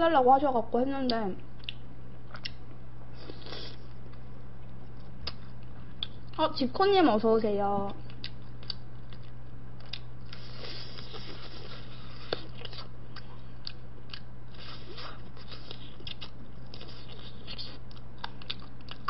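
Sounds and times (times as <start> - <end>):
low electrical hum: 0.0 - 19.0
chewing mouth clicks and smacks: 1.6 - 2.6, 8.1 - 11.6, 14.9 - 19.0.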